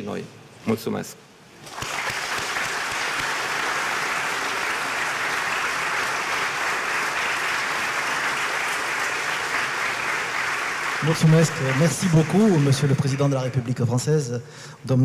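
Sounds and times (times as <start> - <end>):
audience applauding: 1.6 - 14.1.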